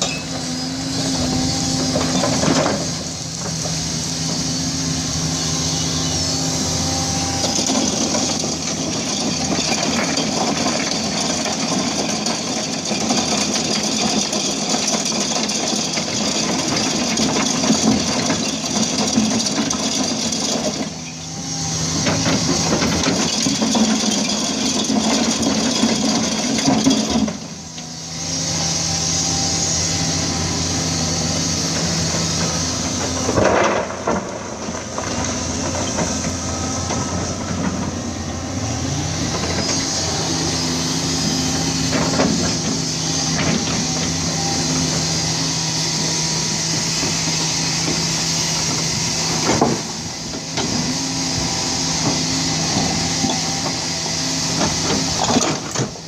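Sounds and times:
excavator diesel engine: 0.0 - 56.0.

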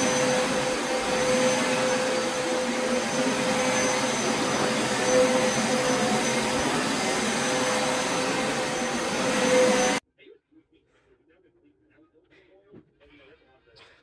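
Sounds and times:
carpet cleaner motor whine: 0.0 - 10.0.

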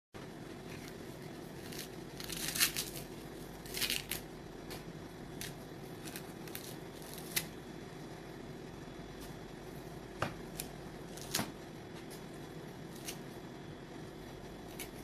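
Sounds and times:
coconut husk fibres tearing: 0.6 - 4.4, 5.3 - 7.6, 10.5 - 12.2.

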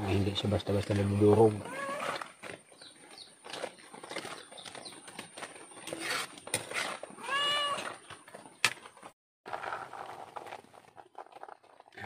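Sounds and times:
cat meowing: 7.2 - 7.9.

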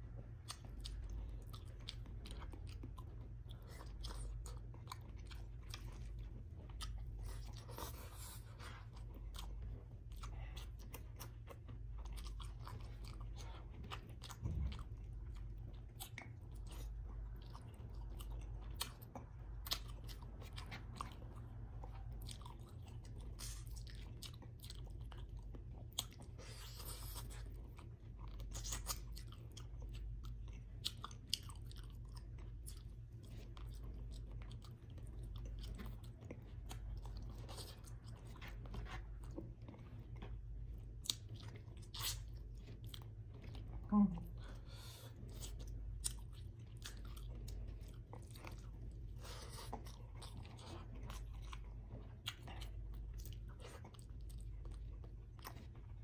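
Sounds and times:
close chewing and mouth sounds: 0.0 - 56.0
steady low hum: 0.0 - 56.0.

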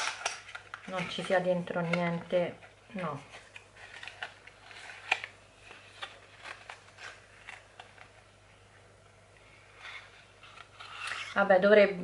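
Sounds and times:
paper rustling: 3.0 - 8.3, 9.7 - 11.4.

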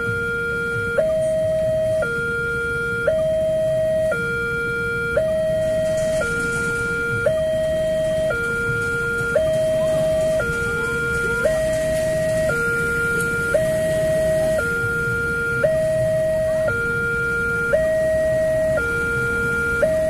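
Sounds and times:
idling road traffic: 0.0 - 20.0
two-tone crossing alarm: 0.0 - 20.0.

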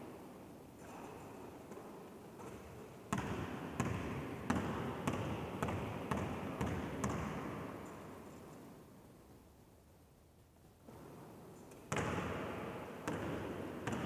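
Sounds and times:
basketball bouncing on wooden floor: 3.1 - 7.6, 11.9 - 12.4, 13.0 - 14.0.

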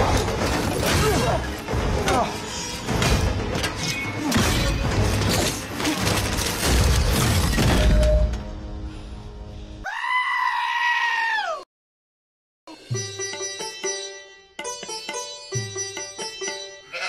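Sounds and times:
fight scene music: 0.0 - 9.5
comedic high-pitched scream effect: 9.8 - 11.6.

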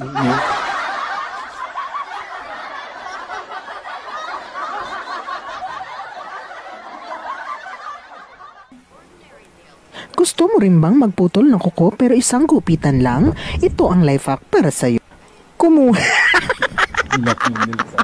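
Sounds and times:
people snickering and giggling: 0.0 - 8.7, 15.9 - 18.0.

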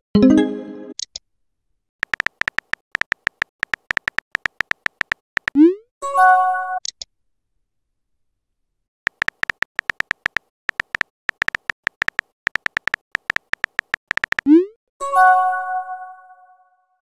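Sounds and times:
keyboard typing clicks: 2.0 - 5.7, 9.1 - 14.6.

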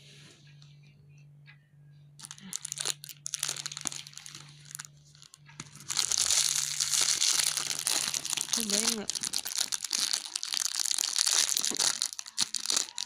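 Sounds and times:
plastic bag crinkling: 2.2 - 13.0.

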